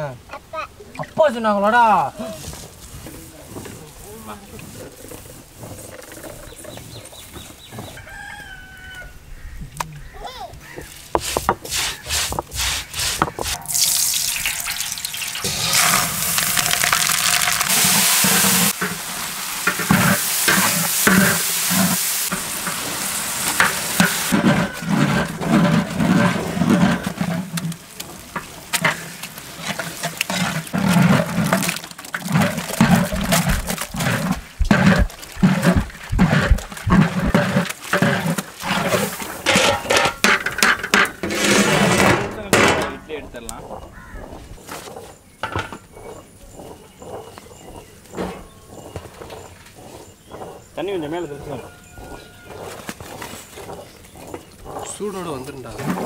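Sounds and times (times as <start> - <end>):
curry sizzling: 10.6 - 41.0
stone roller grinding on stone slab: 11.1 - 42.9, 43.6 - 56.0.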